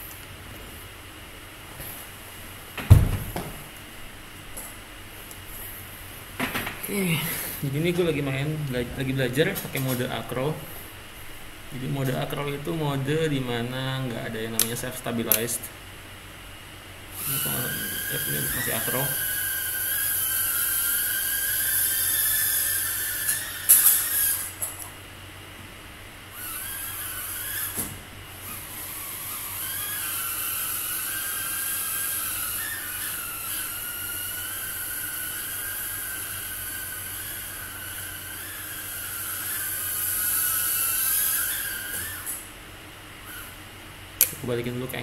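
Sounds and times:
drone motors whining: 0:17.1 - 0:25.0, 0:26.3 - 0:42.5, 0:43.2 - 0:43.6.

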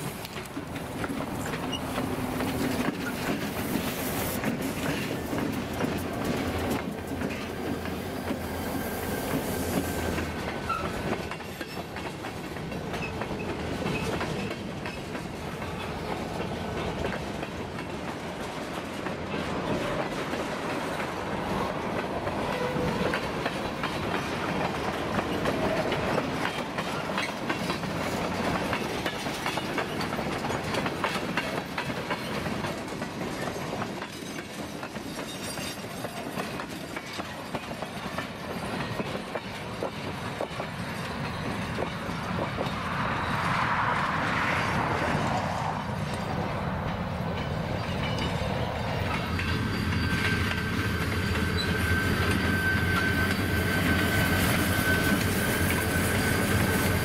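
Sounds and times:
train wheels clacking over joints: 0:00.0 - 0:43.0, 0:44.0 - 0:57.0
diesel locomotive drone: 0:00.0 - 0:57.0
faint wheel squeals: 0:49.4 - 0:56.9.

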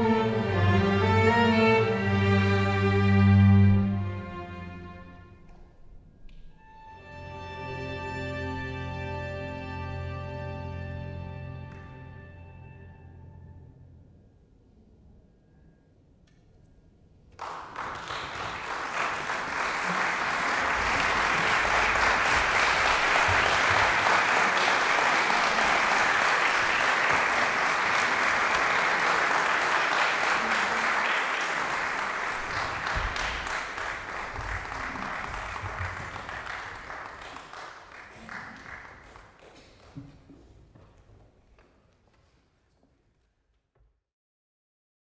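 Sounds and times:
audience applauding: 0:17.4 - 0:40.3.

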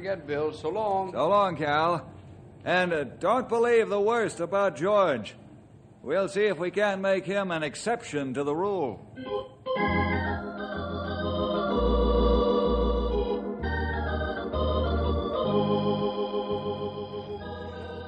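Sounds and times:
organ chords over bass line: 0:09.2 - 0:18.0.

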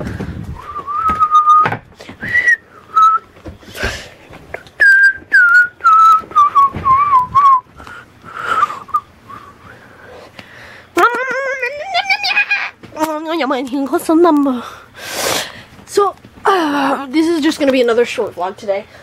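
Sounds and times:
person whistling a tune: 0:00.6 - 0:03.3, 0:04.8 - 0:07.7, 0:08.4 - 0:09.6.

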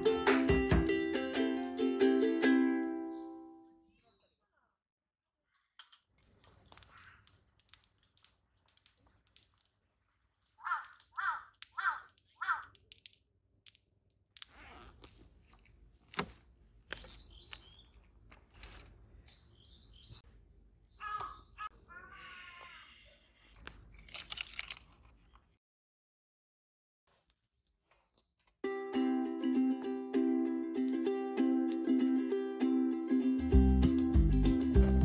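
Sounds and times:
small birds chirping: 0:03.0 - 0:04.7, 0:05.5 - 0:12.9, 0:16.7 - 0:23.0
crow cawing: 0:10.6 - 0:12.7.

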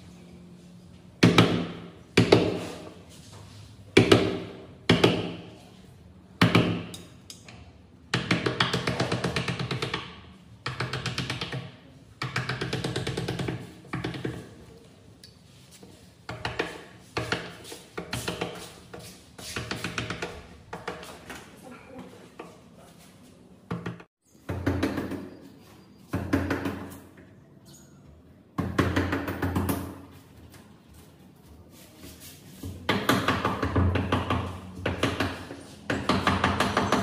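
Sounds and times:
hammer striking wood chisel: 0:01.2 - 0:02.6, 0:04.0 - 0:05.5, 0:32.9 - 0:37.0.

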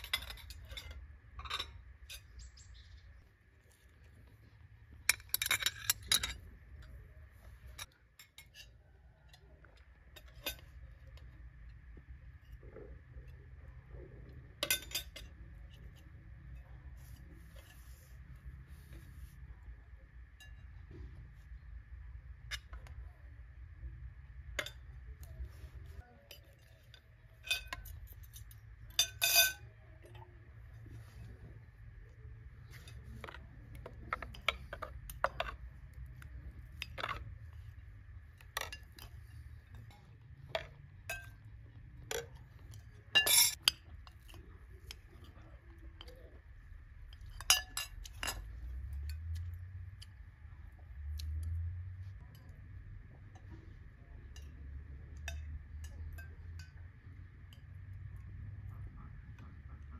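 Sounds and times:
cutlery clinking on plates: 0:14.6 - 0:16.0, 0:26.2 - 0:29.7, 0:42.1 - 0:46.2, 0:47.1 - 0:49.5.

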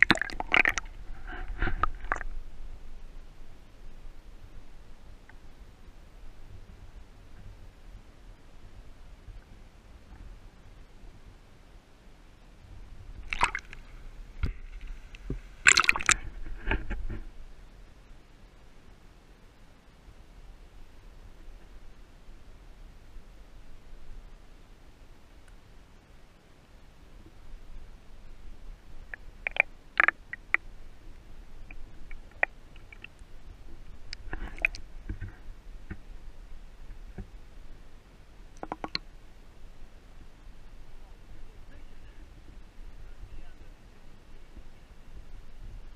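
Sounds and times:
water sloshing and dripping: 0:00.0 - 0:02.4, 0:13.2 - 0:16.7, 0:29.0 - 0:30.6, 0:34.0 - 0:35.4
water splashes: 0:00.0 - 0:02.4, 0:13.1 - 0:16.9, 0:29.0 - 0:35.4, 0:38.6 - 0:39.1
sharp clicks and crackles: 0:29.0 - 0:30.6, 0:38.6 - 0:39.0.

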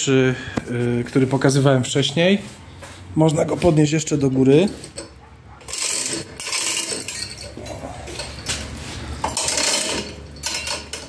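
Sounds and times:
chain hoist chain clinking: 0:04.2 - 0:11.0.

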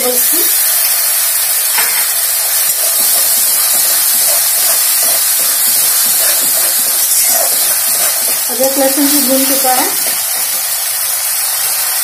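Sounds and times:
paste sizzling in hot oil: 0:00.0 - 0:12.0.

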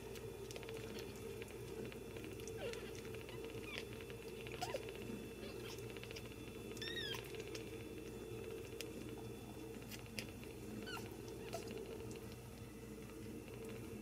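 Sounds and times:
steady low hum: 0:00.0 - 0:14.0
kittens mewing: 0:02.4 - 0:07.6, 0:10.1 - 0:12.2.

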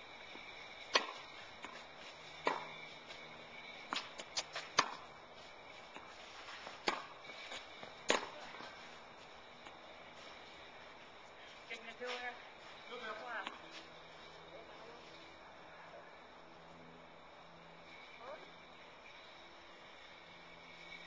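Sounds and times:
tennis rackets hitting ball: 0:00.3 - 0:09.0
ball bouncing on clay court: 0:02.4 - 0:02.8, 0:03.9 - 0:05.0, 0:06.8 - 0:08.7.

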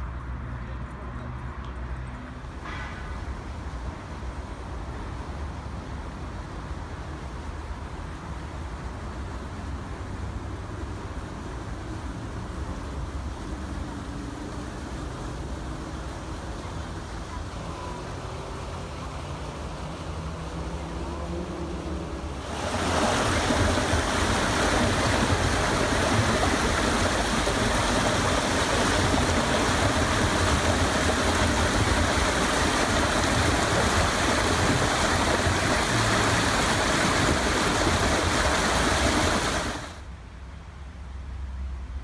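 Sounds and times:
stream flowing over stones: 0:09.8 - 0:40.1.

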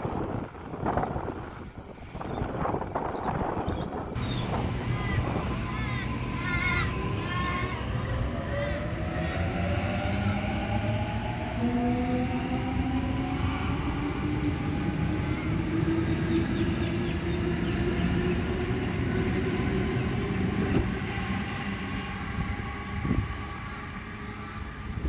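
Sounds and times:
train wheels rumbling on rail: 0:00.0 - 0:25.0
train motors whining: 0:04.0 - 0:09.4.

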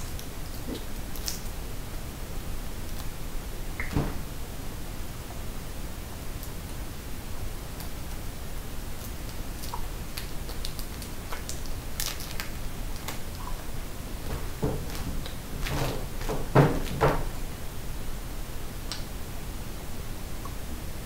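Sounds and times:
candy wrapper crinkling: 0:09.3 - 0:13.4.

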